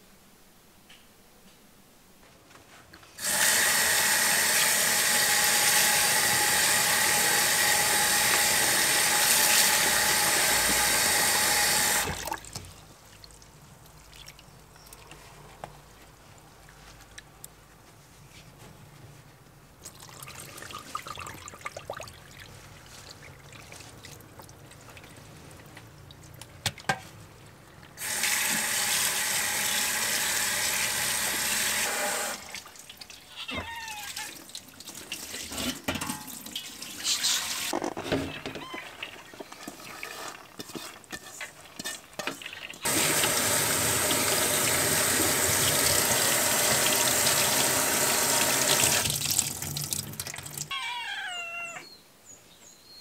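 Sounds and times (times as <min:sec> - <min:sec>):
kitchen tap running: 0:03.2 - 0:12.6, 0:28.0 - 0:32.7, 0:42.4 - 0:50.7.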